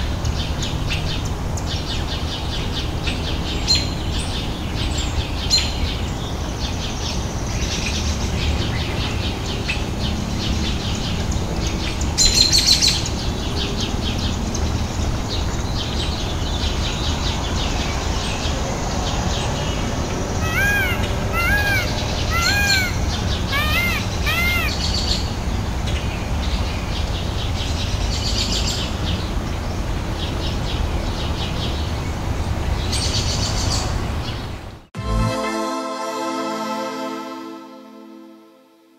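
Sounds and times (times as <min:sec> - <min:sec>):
short rising and falling calls: 0:20.4 - 0:24.9
small birds chirping: 0:20.4 - 0:25.3.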